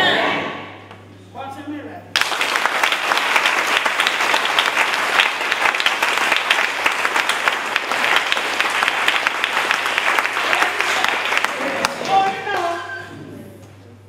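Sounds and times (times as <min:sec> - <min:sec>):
congregation clapping: 0:02.1 - 0:13.1.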